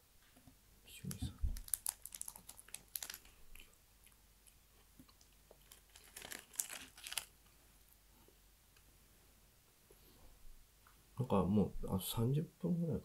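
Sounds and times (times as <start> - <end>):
crunchy snack chewing: 1.6 - 3.7, 5.1 - 7.3.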